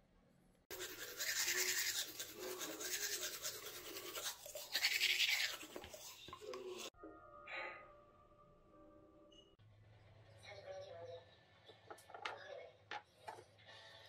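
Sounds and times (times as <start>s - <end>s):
toothbrush scrubbing teeth: 0.7s - 6.9s.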